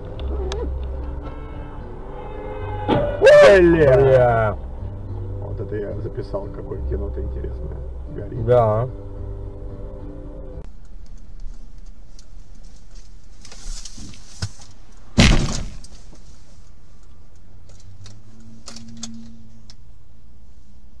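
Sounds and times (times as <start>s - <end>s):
car road and engine rumble: 0.0s - 21.0s
loud sharp crash impact: 15.2s - 15.8s.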